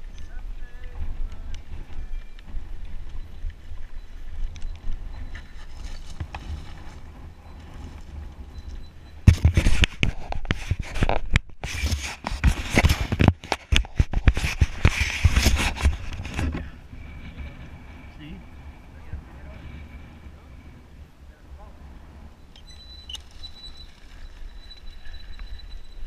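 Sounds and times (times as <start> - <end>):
bike rattling over bumps: 0.0 - 26.0
wind rumbling on microphone: 0.0 - 26.0.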